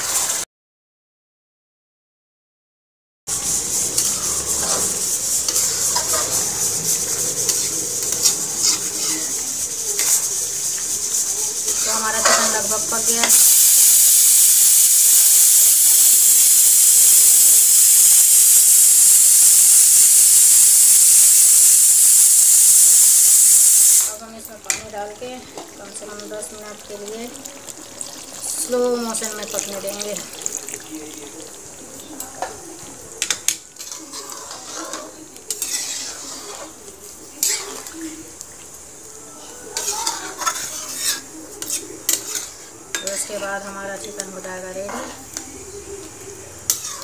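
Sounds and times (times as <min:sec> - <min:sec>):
metal spatula scraping a pot: 0:03.3 - 0:13.6, 0:33.2 - 0:38.0, 0:39.8 - 0:45.5, 0:46.7 - 0:47.0
pressure cooker hissing steam: 0:03.3 - 0:24.2.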